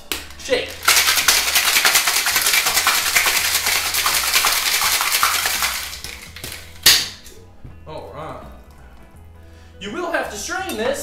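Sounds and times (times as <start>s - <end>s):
hand smacking shaker: 0.0s - 7.2s
ice rattling in cocktail shaker: 0.7s - 7.1s.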